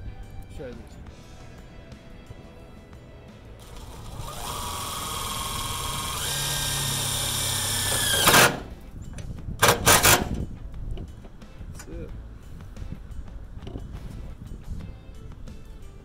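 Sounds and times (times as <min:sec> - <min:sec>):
short driver bursts: 0:03.6 - 0:08.7, 0:09.6 - 0:10.4
cordless driver whining: 0:03.6 - 0:08.8, 0:09.6 - 0:10.5.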